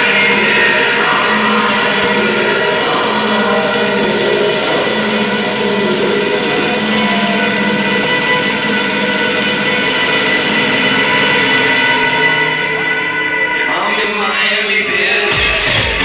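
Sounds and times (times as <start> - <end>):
electro dance music: 0.0 - 16.0.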